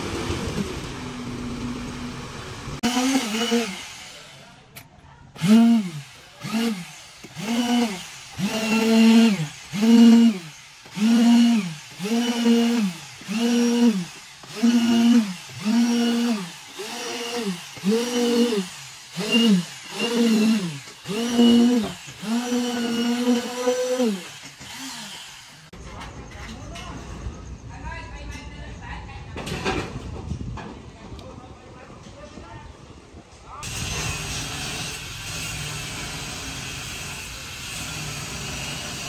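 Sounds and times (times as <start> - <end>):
concrete vibrator motor: 0.0 - 4.7, 5.4 - 25.8.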